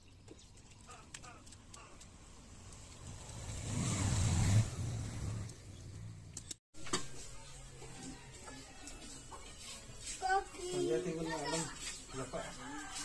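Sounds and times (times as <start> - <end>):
vehicle passing by: 1.8 - 6.3.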